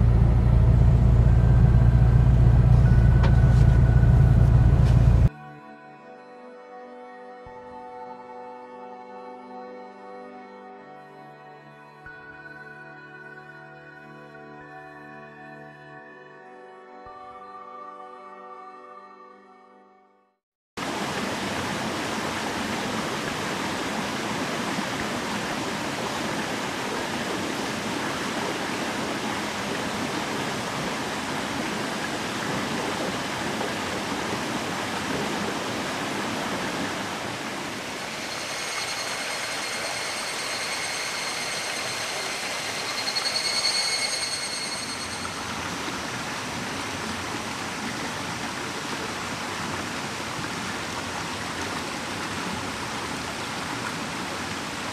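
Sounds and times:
stream flowing over rocks: 20.8 - 54.9.

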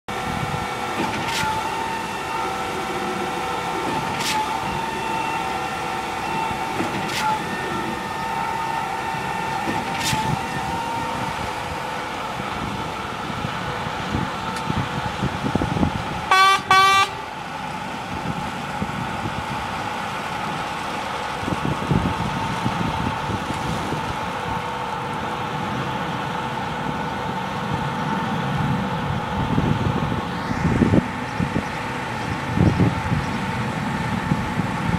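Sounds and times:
concrete pump running: 0.1 - 16.3
vehicle horn toots: 16.3 - 17.2.

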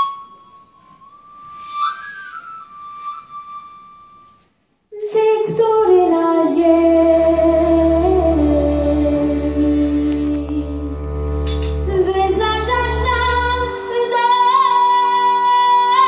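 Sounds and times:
high whistle-like melody: 0.0 - 4.5
woman singing: 4.9 - 11.0, 11.8 - 16.0
folk and orchestral accompaniment: 5.9 - 16.0.

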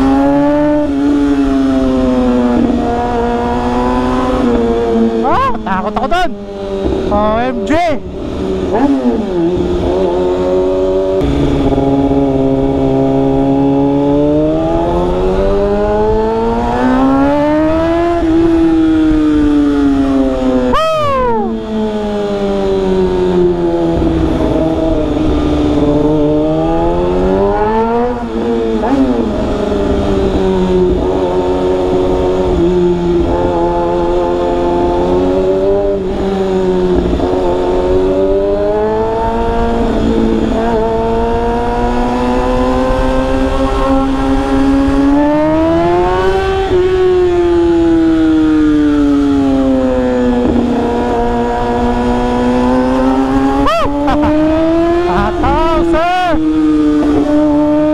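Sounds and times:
motorcycle engine revving: 0.0 - 57.9
wind and road noise: 0.0 - 57.9.

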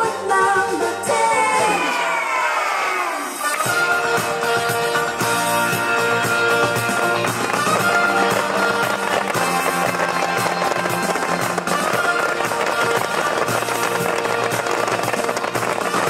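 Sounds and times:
loud music playing: 0.0 - 16.0
fireworks popping and crackling: 3.4 - 16.0.

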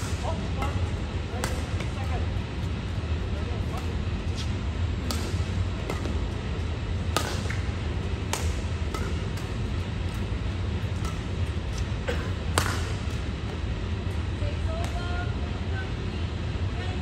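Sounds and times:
rackets striking shuttlecock: 0.0 - 2.2, 5.0 - 6.3, 7.0 - 13.6
low hum: 0.0 - 17.0.

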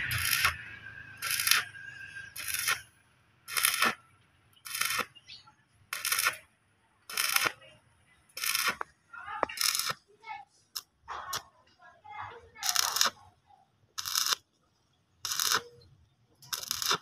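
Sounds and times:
arc welding crackling sizzle: 0.0 - 4.0, 4.6 - 5.3, 5.9 - 6.5, 7.1 - 7.6, 8.4 - 10.0, 12.6 - 13.2, 14.0 - 14.5, 15.2 - 15.7, 16.4 - 17.0.

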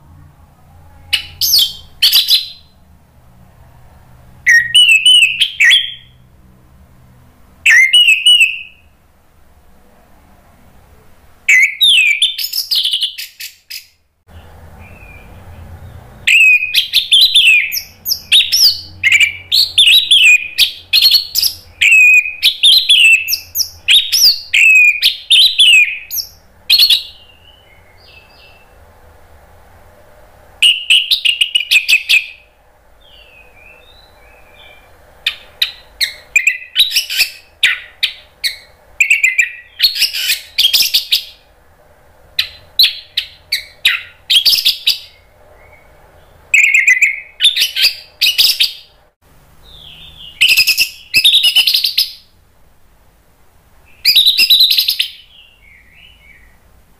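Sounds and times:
bird singing whistled notes: 1.0 - 2.8, 4.5 - 6.2, 7.6 - 8.9, 11.5 - 14.0, 14.8 - 28.8, 30.6 - 41.4, 42.4 - 49.0, 49.6 - 52.3, 53.8 - 56.6.

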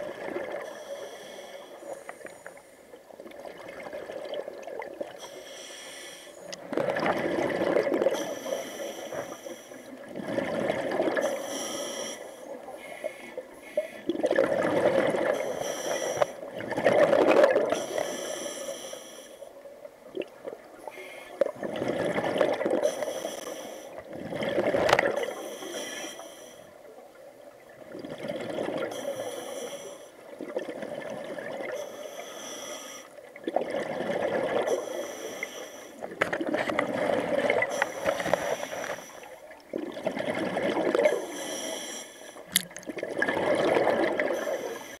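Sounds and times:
exhaled bubbles gurgling: 0.0 - 1.4, 3.0 - 5.4, 6.4 - 11.7, 12.5 - 18.2, 19.6 - 23.2, 23.9 - 29.5, 30.2 - 32.6, 33.2 - 45.0
diver breathing through regulator: 0.6 - 2.8, 5.2 - 6.5, 8.1 - 9.9, 11.2 - 14.1, 15.2 - 16.4, 17.7 - 19.5, 22.8 - 24.0, 25.1 - 26.7, 28.9 - 30.2, 31.7 - 33.2, 34.6 - 36.1, 37.4 - 39.5, 41.0 - 42.6, 44.2 - 45.0.

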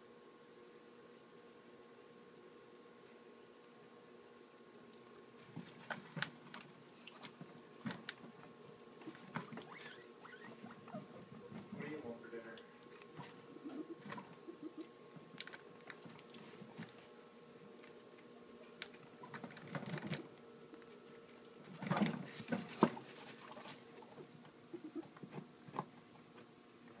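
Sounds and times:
guinea pigs chewing carrot: 4.6 - 27.0.

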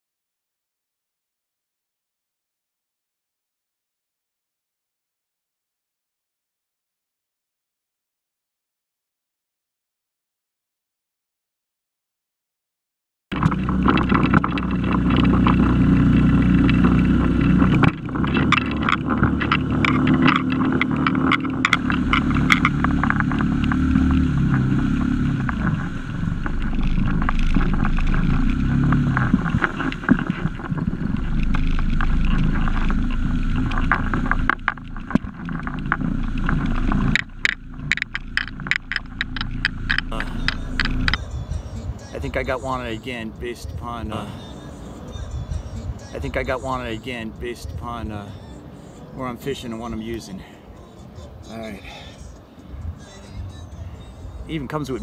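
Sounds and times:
knocks and clicks: 13.3 - 43.0
outboard motor running: 13.3 - 55.0.

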